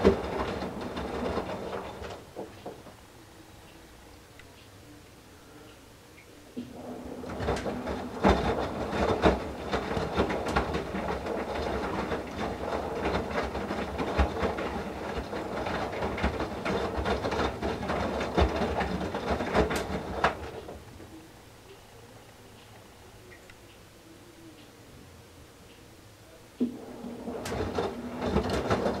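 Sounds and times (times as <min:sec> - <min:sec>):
washer drum tumbling: 0:00.0 - 0:03.0, 0:06.6 - 0:20.9, 0:26.6 - 0:29.0.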